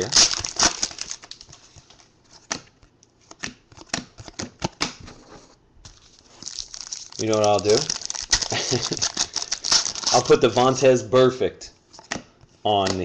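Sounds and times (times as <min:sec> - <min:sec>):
foil wrapper crackling: 0:00.0 - 0:01.6, 0:06.0 - 0:10.4
cards snapping and clicking: 0:02.5 - 0:05.0, 0:12.1 - 0:13.0.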